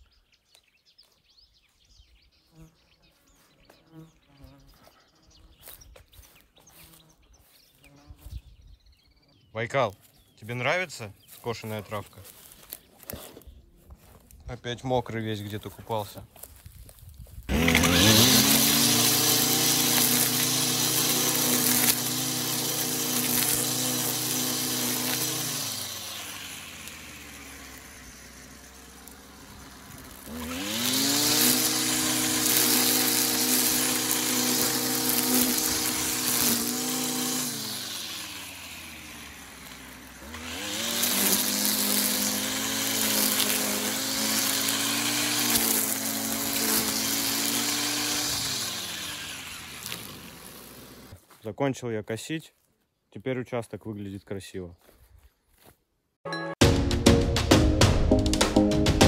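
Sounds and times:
string trimmer cutting grass: 2.5 - 8.8, 10.0 - 14.5, 15.2 - 51.4.

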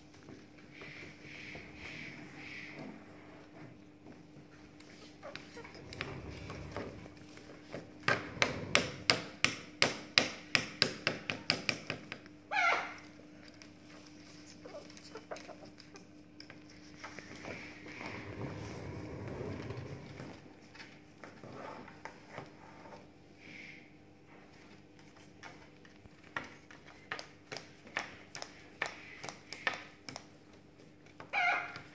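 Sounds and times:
parrot squawk: 12.5 - 13.0, 31.3 - 31.9.

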